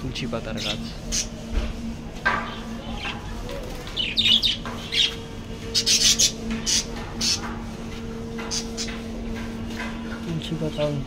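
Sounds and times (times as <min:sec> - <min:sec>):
steady low hum: 0:00.0 - 0:11.0
budgerigars chirping and squawking: 0:00.4 - 0:01.4, 0:02.3 - 0:07.6, 0:08.4 - 0:09.0.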